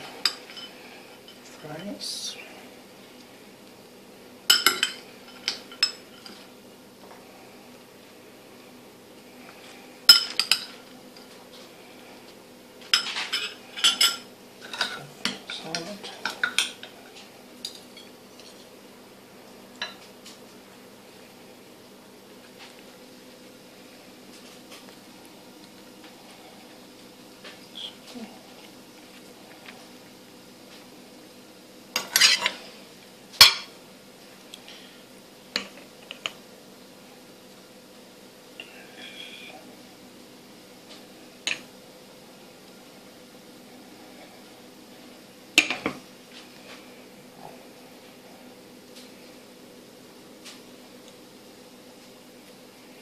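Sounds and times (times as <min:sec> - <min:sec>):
cutlery clinking on ceramic plates: 0:04.5 - 0:06.4.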